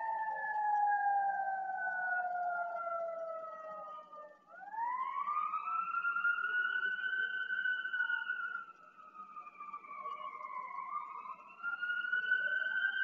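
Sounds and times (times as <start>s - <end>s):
fire siren wailing: 4.8s - 6.4s.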